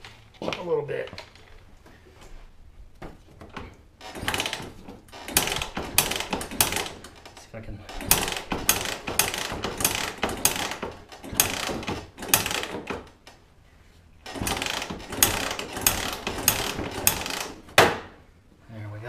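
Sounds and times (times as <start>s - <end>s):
engine turned over by hand: 3.4s - 13.4s, 14.2s - 18.2s.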